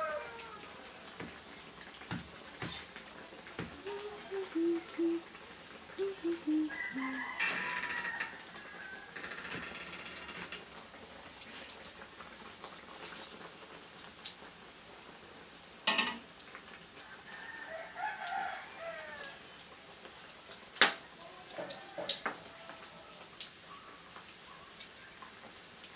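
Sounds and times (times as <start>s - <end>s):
food sizzling in hot oil: 0.0s - 9.6s
drawn-out call: 3.8s - 5.3s, 6.0s - 8.4s.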